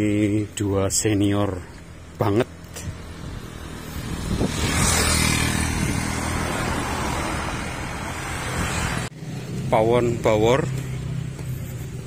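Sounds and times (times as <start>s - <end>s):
car passing: 1.8s - 9.6s.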